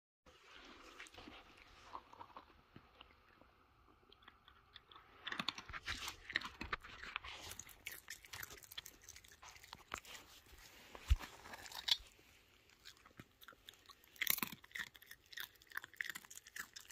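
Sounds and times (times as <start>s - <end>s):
fox crunching nuts: 3.8s - 16.9s.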